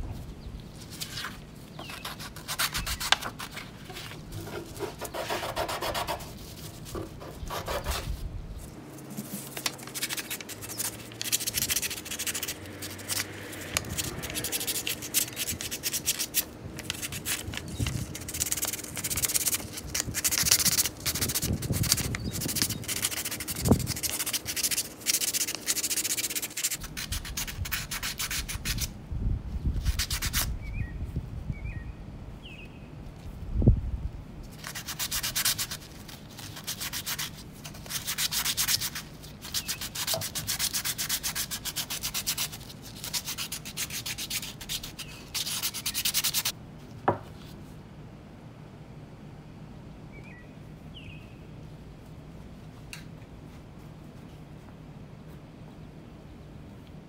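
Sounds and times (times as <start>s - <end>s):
sandpaper scraping metal: 0.8s - 8.2s, 9.1s - 28.9s, 34.6s - 46.5s.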